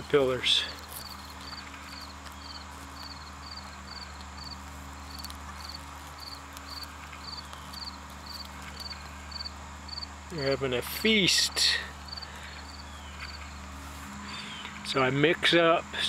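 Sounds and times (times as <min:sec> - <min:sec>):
cricket chirping: 0:00.8 - 0:10.5, 0:12.0 - 0:13.7.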